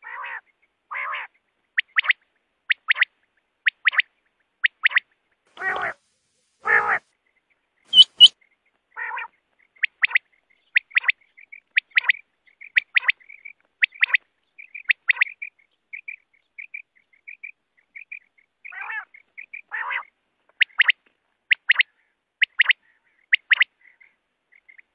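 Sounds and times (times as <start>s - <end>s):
harsh rasping bird calls: 3.7s - 6.0s, 6.6s - 7.0s, 7.9s - 8.4s, 9.0s - 20.9s
quail calling: 5.6s - 6.0s, 6.6s - 7.0s, 7.9s - 8.4s, 9.0s - 24.9s.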